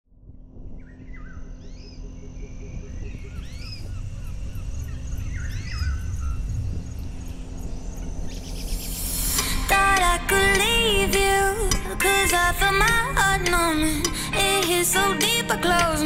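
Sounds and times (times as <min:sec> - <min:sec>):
low rumble: 0:00.1 - 0:15.0.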